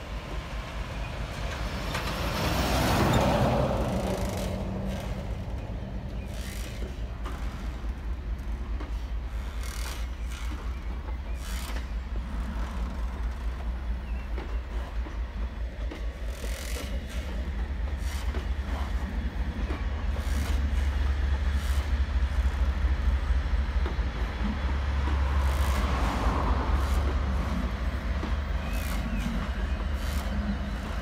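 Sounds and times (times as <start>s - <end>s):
diesel locomotive engine droning: 0.0s - 31.0s
wagon wheels clattering on rails: 1.4s - 20.9s.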